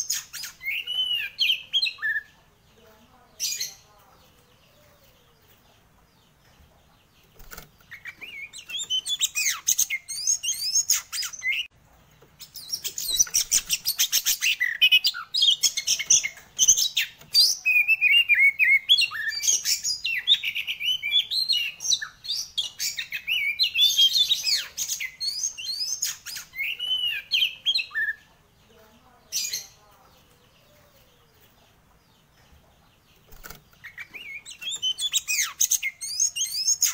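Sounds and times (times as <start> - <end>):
bird singing whistles and trills: 0.0 - 2.3, 7.9 - 11.7, 12.5 - 28.2, 33.8 - 36.9.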